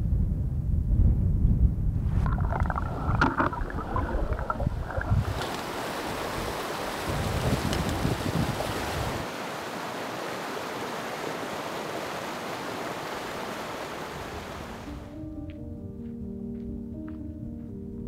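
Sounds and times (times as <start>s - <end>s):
wind buffeting microphone: 0.0s - 9.3s
water churning around wading legs: 2.2s - 7.6s
river rushing over rocks: 2.8s - 14.9s.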